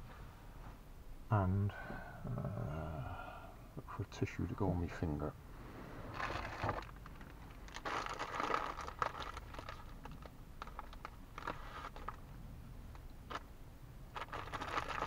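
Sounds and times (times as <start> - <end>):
plastic tissue packet crinkling: 6.1 - 12.2, 14.1 - 15.0
small clicks and rustles: 6.1 - 13.5, 14.1 - 15.0.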